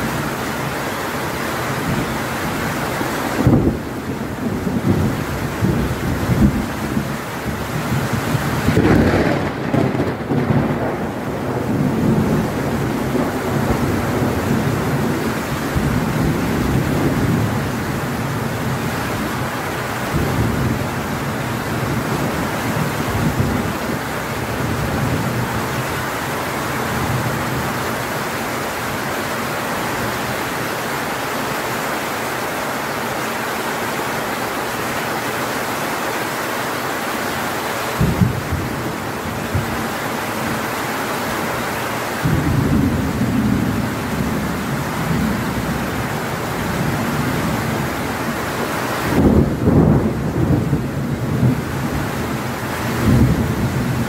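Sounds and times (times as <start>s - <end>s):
heavy rain on metal roof: 0.0s - 54.0s
thunder rumbling: 3.3s - 29.0s, 37.9s - 40.6s, 42.2s - 48.4s, 49.1s - 54.0s.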